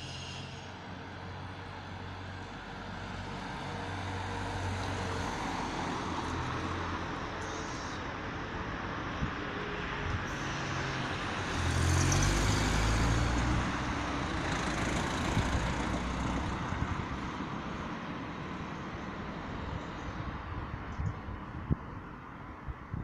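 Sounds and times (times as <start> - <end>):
road traffic hum: 0.0 - 23.0
car driving past: 10.4 - 16.6.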